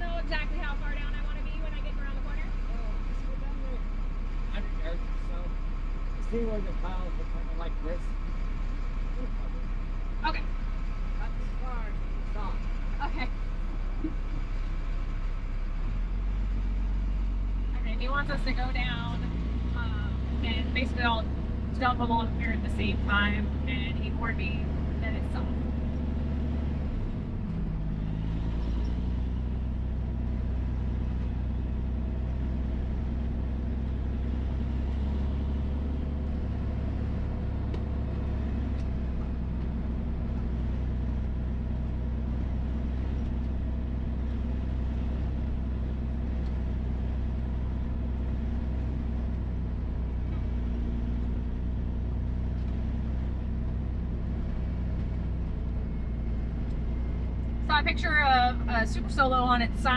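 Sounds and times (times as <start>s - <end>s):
diesel truck engine humming: 0.0s - 59.9s.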